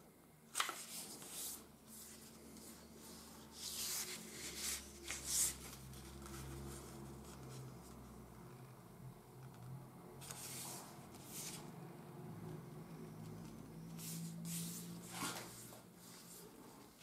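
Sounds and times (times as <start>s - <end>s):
paper rustling as folded: 0.5s - 7.7s.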